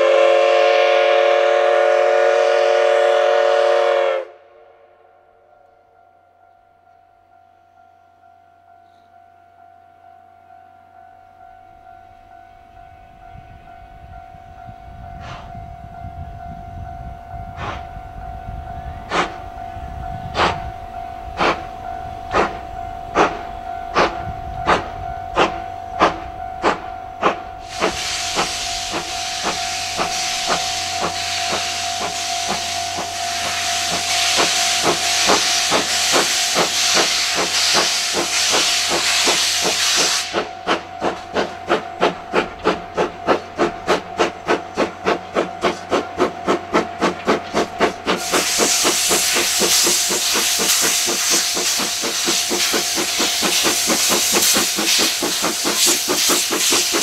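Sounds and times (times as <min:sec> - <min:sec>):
steam locomotive exhaust chuffs: 0:00.0 - 0:05.0, 0:11.3 - 0:57.0
steam venting hiss: 0:19.1 - 0:19.5, 0:20.2 - 0:20.7, 0:21.3 - 0:21.7, 0:22.3 - 0:57.0.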